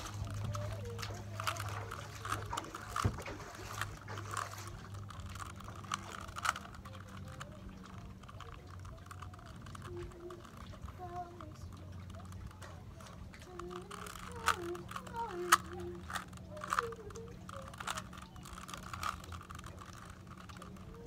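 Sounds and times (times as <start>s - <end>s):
low hum: 0.0s - 21.0s
plastic puzzle cube clicking: 0.0s - 21.0s.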